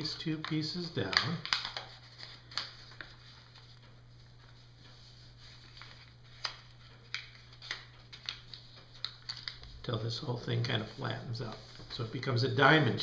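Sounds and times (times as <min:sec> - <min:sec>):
paper rustling and creasing: 0:00.4 - 0:13.0
sharp paper crackles: 0:05.6 - 0:09.8.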